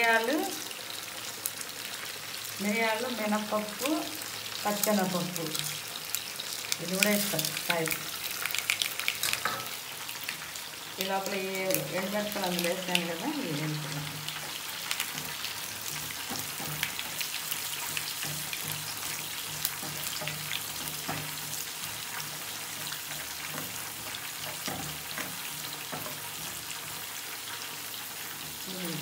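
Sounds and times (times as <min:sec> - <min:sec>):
seeds sizzling and popping in oil: 0:00.0 - 0:29.0.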